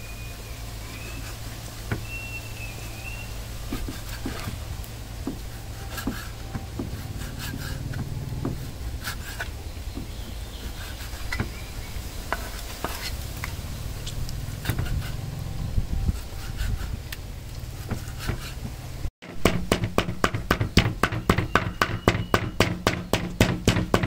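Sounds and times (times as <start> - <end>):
steady low rumble: 0.0 - 19.1.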